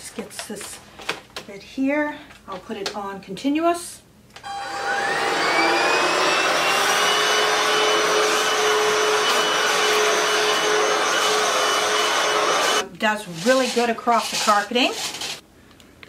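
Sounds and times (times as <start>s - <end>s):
vacuum motor whine: 4.4s - 12.8s.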